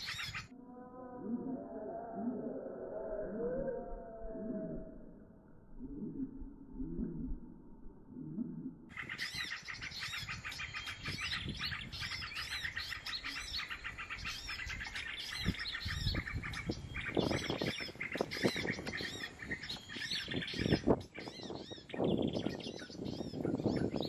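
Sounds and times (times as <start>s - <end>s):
small songbirds chirping: 0.0s - 0.5s, 8.9s - 24.0s.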